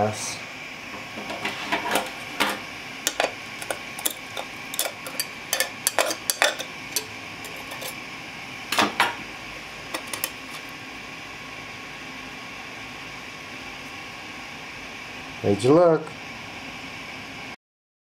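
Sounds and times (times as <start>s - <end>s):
metal scraper scraping glass: 3.1s - 8.0s.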